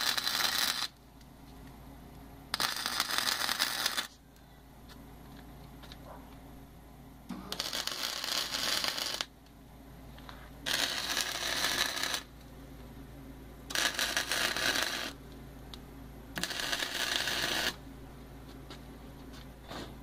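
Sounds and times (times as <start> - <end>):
electric arc welding: 0.0 - 1.0, 2.5 - 4.2, 7.4 - 9.3, 10.6 - 12.3, 13.7 - 15.2, 16.3 - 17.8.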